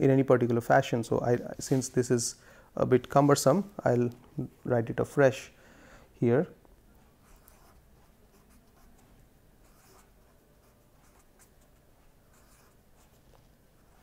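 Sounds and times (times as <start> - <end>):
pen scratching on paper: 7.2 - 13.2, 13.8 - 14.0.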